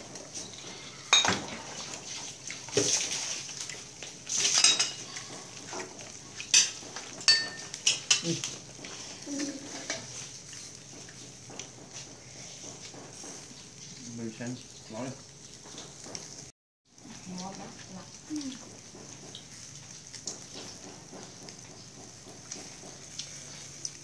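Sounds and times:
dishes and utensils clinking: 0.4 - 2.0, 4.3 - 10.6.

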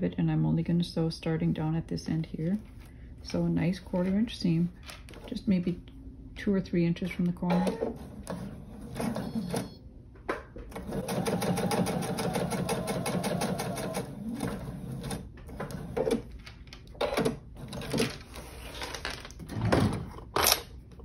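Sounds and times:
sewing machine stitching: 10.7 - 16.2.

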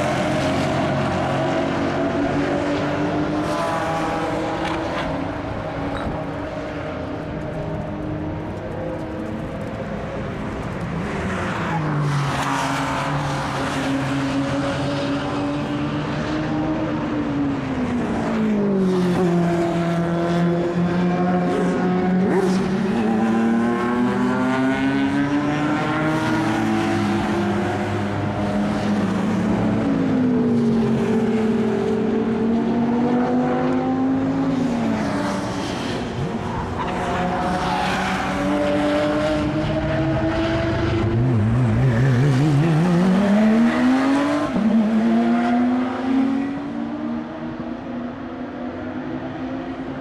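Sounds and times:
sports car engines racing: 0.0 - 50.0
car accelerating hard: 36.8 - 47.4.

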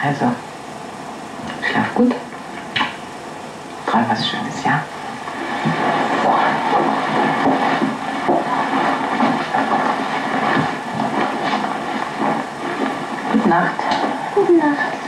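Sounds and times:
film projector rattling: 4.9 - 15.0.

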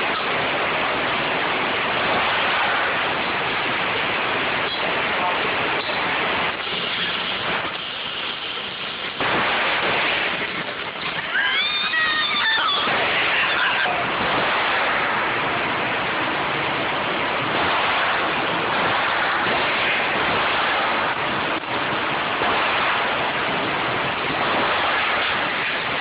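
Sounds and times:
loud rushing noise: 0.0 - 26.0.

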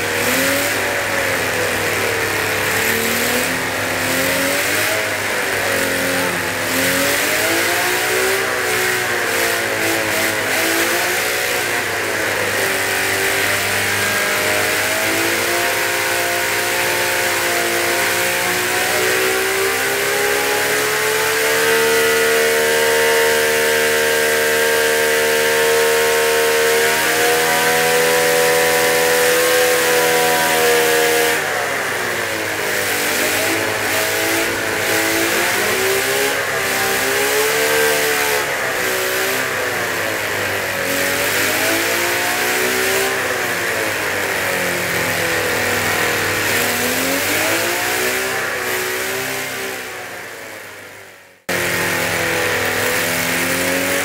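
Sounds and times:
model engine revving: 0.0 - 54.0.

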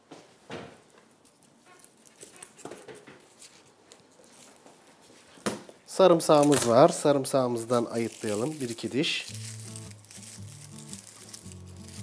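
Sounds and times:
soft rustling: 0.2 - 5.4, 6.4 - 12.0.

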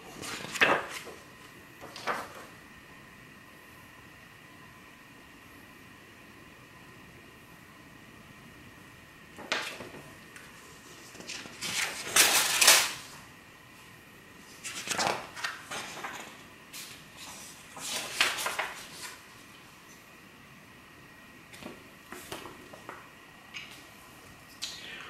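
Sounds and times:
comic books rustling and sliding: 0.0 - 2.5, 9.4 - 13.2, 14.4 - 19.4, 21.6 - 23.0.

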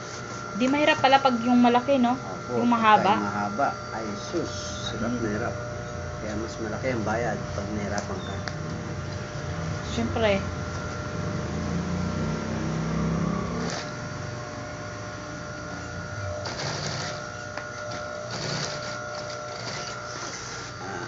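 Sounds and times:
sewing machine motor humming: 9.9 - 14.2, 15.2 - 21.0
sewing machine stitching: 13.6 - 14.0, 16.4 - 20.8.

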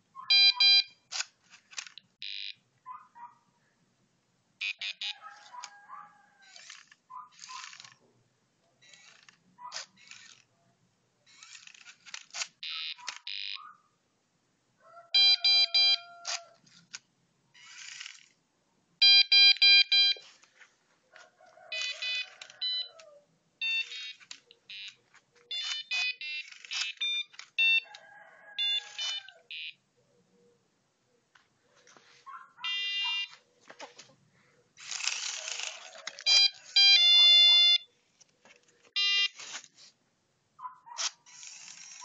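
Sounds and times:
short electronic beeps: 0.2 - 1.0, 2.2 - 2.6, 15.2 - 16.1, 19.0 - 20.2, 23.6 - 27.8, 32.7 - 33.3, 36.3 - 37.9, 39.0 - 39.4
small motors whirring and clicking: 6.4 - 8.0, 8.8 - 10.5, 11.3 - 13.3, 17.6 - 18.4, 25.5 - 27.5, 34.8 - 36.9, 39.3 - 39.8, 41.0 - 42.0.

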